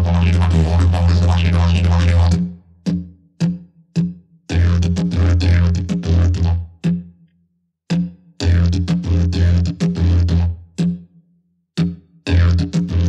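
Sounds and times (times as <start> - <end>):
didgeridoo playing: 0.0 - 3.0, 4.5 - 7.0, 8.4 - 11.1, 12.3 - 13.0.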